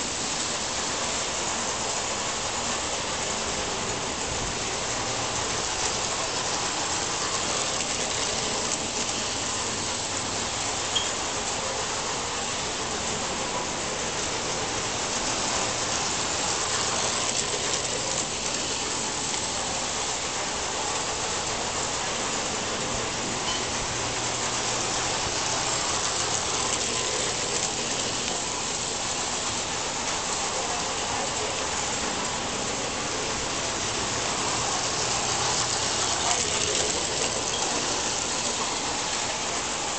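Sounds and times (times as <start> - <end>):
model train rolling hiss: 0.0 - 39.9.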